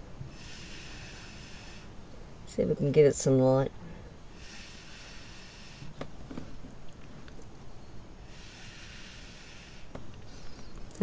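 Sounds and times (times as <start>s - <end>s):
breath blown through straw: 0.3s - 1.9s, 4.3s - 6.0s, 8.2s - 9.9s.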